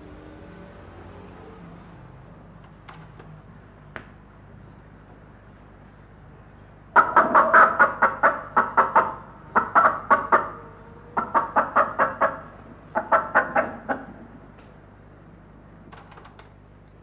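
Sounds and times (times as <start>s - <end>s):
hen clucking: 7.0s - 14.3s.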